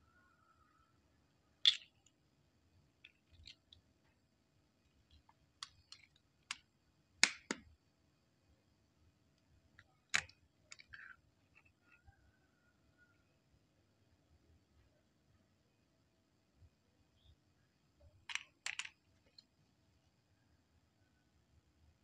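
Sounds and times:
eggshells cracking: 1.7s - 2.1s, 3.1s - 3.8s, 5.0s - 7.6s, 18.2s - 19.0s.

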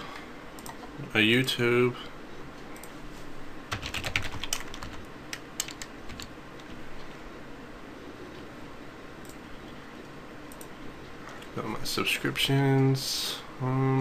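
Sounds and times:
typing on computer keyboard: 3.7s - 6.7s.

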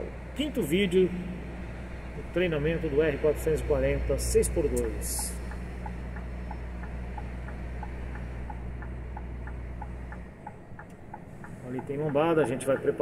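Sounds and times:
truck engine drone: 0.0s - 13.0s
light regular ticking: 4.6s - 13.0s.

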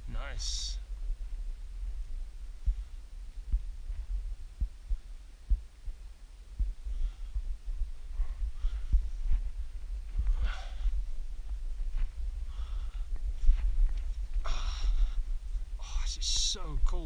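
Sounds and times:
low rumbling: 0.0s - 17.0s
faint breaths or scuffs: 6.9s - 16.5s.

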